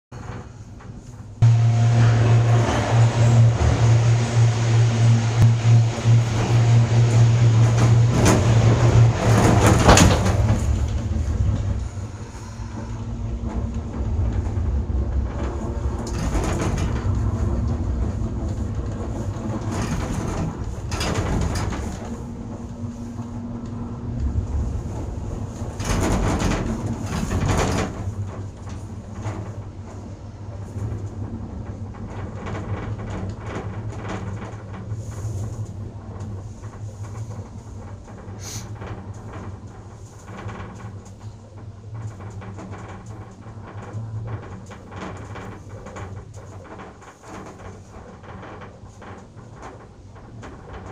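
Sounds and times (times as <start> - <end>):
cabin rumbling over rollers: 0.1 - 50.9
gondola cabin humming on cable: 0.2 - 50.9
machinery drone: 1.4 - 27.9.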